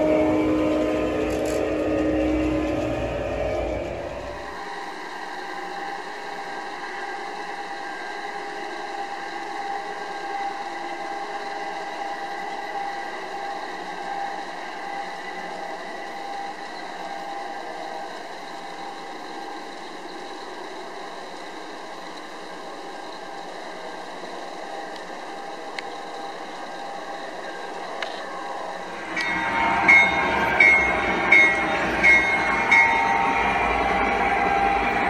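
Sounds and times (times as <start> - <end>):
model train whirring on track: 0.0 - 35.0.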